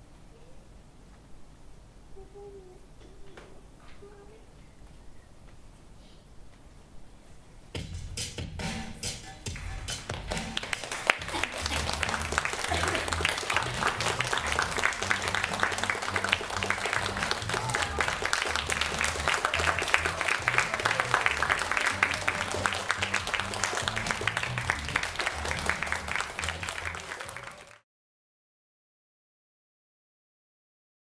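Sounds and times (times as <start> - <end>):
background music with bass line: 7.8 - 10.8
audience applauding: 9.6 - 27.8.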